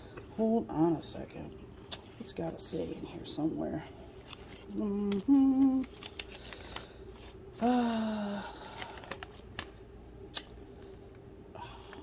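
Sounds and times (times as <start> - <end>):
woman humming: 4.7 - 5.9, 7.6 - 8.6.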